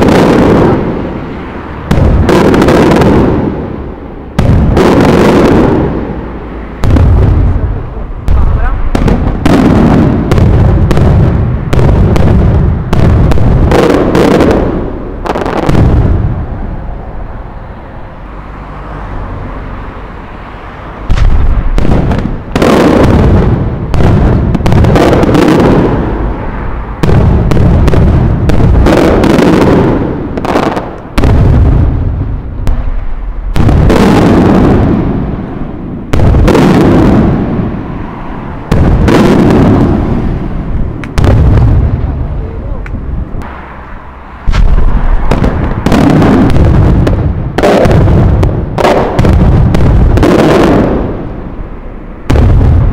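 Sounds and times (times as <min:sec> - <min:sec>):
firework booms: 0:00.0 - 0:17.3, 0:21.0 - 0:43.7, 0:44.4 - 0:52.9
rumble of firework shells: 0:06.8 - 0:16.4, 0:21.1 - 0:26.1, 0:27.0 - 0:37.7, 0:38.7 - 0:43.5, 0:44.5 - 0:51.3.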